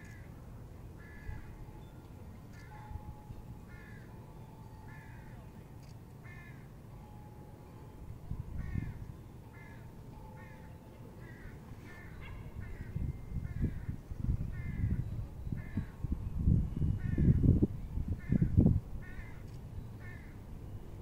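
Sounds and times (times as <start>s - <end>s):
wind rumble on microphone: 8.1s - 9.2s, 12.2s - 20.2s.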